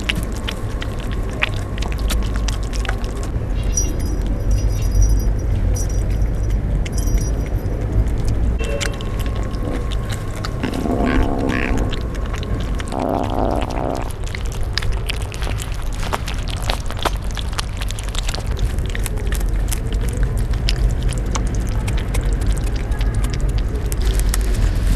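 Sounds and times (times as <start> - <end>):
kittens chewing and lapping: 0.0 - 24.9
steady low rumble: 0.0 - 24.9
small bell jingling: 3.6 - 7.8.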